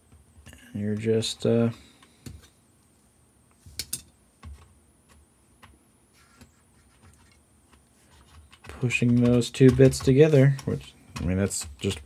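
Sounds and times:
clicks of small parts handled: 3.8s - 4.2s.

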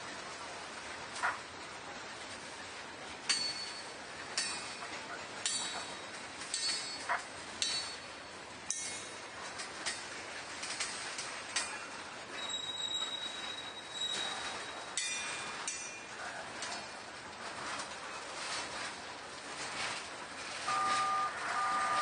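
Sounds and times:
freight train wheels clanking: 0.0s - 22.0s
high wheel squeal: 12.3s - 15.5s, 20.7s - 22.0s.

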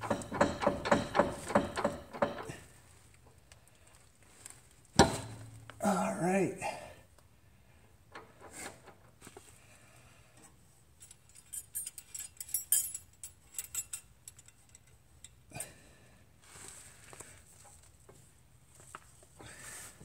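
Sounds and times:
metal tools clicking and rattling: 11.0s - 15.4s.

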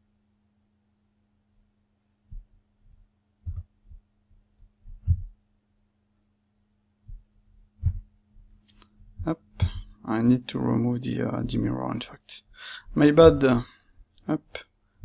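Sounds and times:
faint steady hum: 0.0s - 15.0s
computer mouse clicks: 3.4s - 3.7s.

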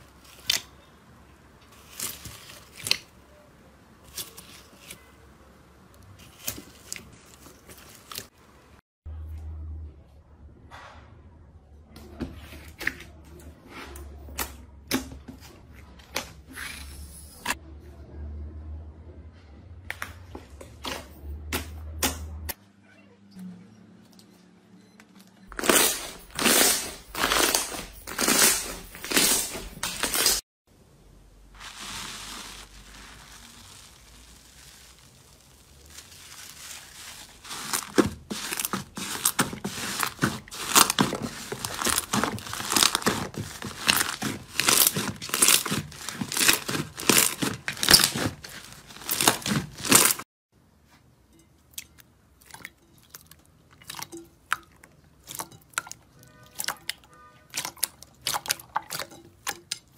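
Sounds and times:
slime crackling and popping: 31.6s - 50.2s.

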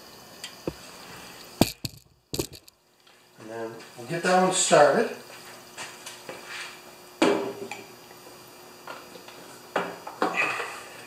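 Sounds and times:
metal clanks: 1.6s - 2.7s.

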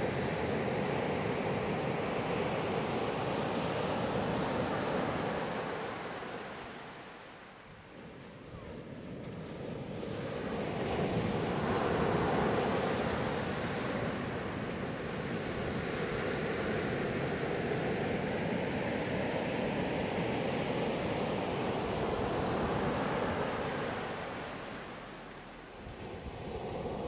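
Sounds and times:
sea waves breaking on beach: 8.8s - 27.0s.

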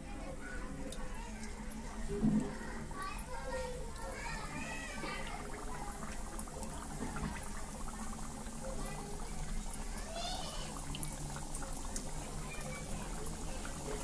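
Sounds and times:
dough deep-frying in oil: 0.0s - 14.0s.

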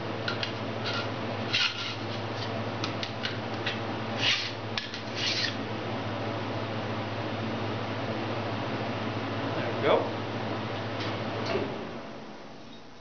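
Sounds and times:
file rasping on steel: 4.2s - 5.6s.

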